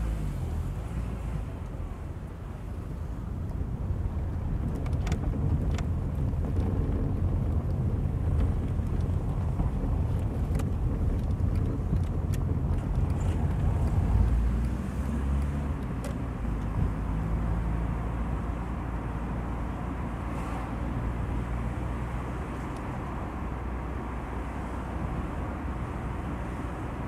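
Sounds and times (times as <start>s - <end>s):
car rumbling over cobblestones: 0.0s - 27.0s
light rattling clicks: 4.3s - 14.0s.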